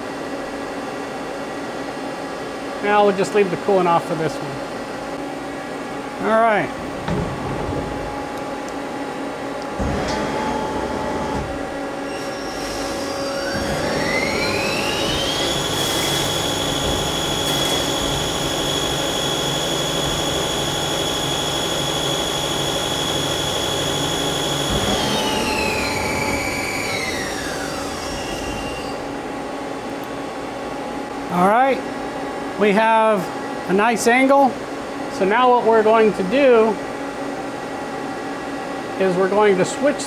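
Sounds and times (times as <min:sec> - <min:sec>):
lathe spindle whining: 0:12.2 - 0:29.0
lathe tool cutting metal: 0:12.3 - 0:28.4.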